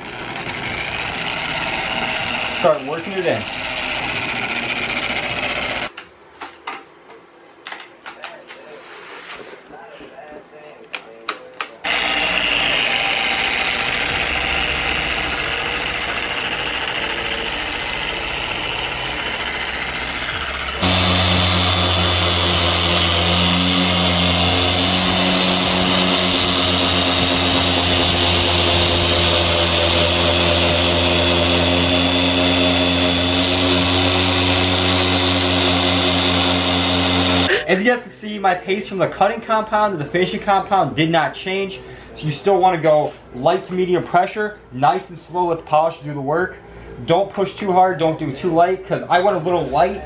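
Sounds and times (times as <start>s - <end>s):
car polisher running: 0.0s - 5.9s, 11.8s - 37.7s
strong low hum: 11.9s - 37.6s.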